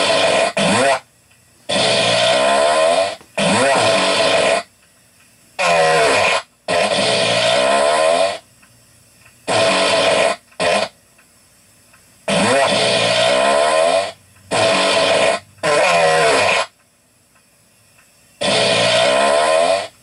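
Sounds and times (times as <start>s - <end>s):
farts: 0.0s - 1.0s, 1.7s - 4.7s, 5.6s - 8.4s, 9.5s - 11.0s, 12.3s - 16.8s, 18.4s - 20.0s.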